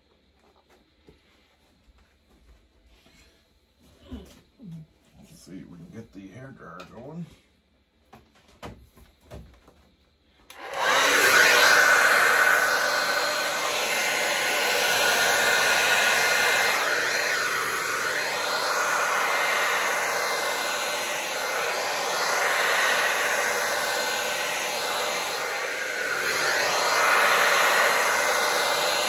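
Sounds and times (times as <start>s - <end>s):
hair dryer blowing: 10.4s - 29.0s.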